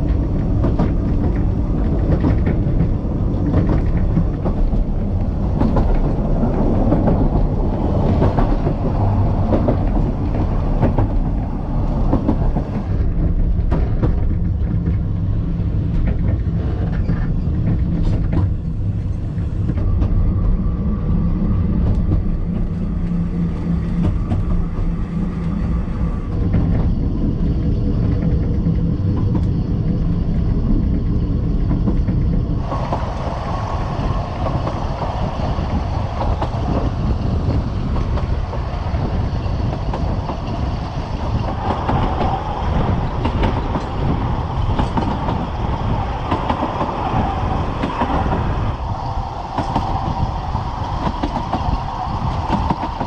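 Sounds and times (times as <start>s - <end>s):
train wheels rumbling on rails: 0.0s - 53.0s
wheels clicking over rail joints: 26.3s - 53.0s.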